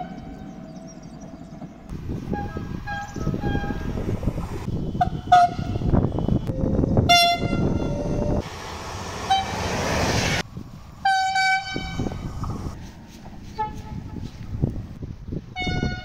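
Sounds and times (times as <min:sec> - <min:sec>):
rumble of passing trains: 0:00.0 - 0:16.0
train horn blasts: 0:02.3 - 0:04.0, 0:05.0 - 0:08.4, 0:09.2 - 0:09.8, 0:11.0 - 0:12.3, 0:13.5 - 0:14.1, 0:15.6 - 0:16.0.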